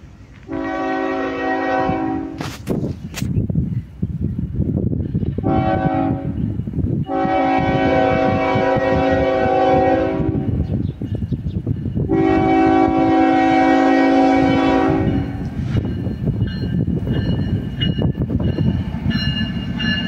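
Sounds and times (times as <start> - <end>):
low train rumble: 0.0 - 20.0
locomotive air horn blasts: 0.5 - 2.6, 5.4 - 6.4, 7.1 - 10.6, 12.1 - 15.6.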